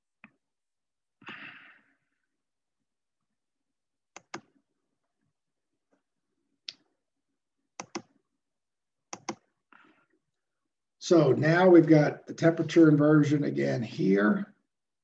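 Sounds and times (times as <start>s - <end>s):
computer mouse button clicking: 4.2s - 4.5s, 9.1s - 9.4s.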